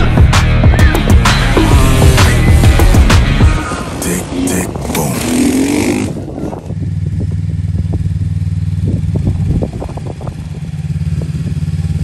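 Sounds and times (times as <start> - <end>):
quad engine revving: 1.0 - 12.0.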